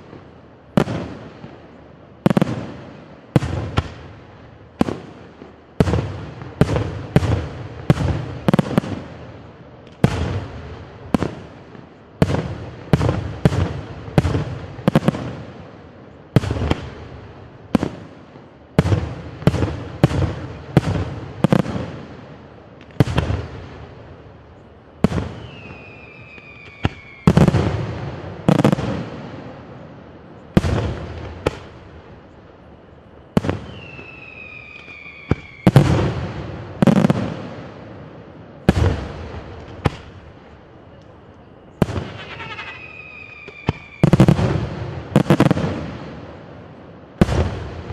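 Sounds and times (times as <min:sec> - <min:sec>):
firework whistle sliding down: 0:25.3 - 0:27.4, 0:33.4 - 0:35.8, 0:42.1 - 0:44.2
firework shells bursting: 0:41.8 - 0:44.6.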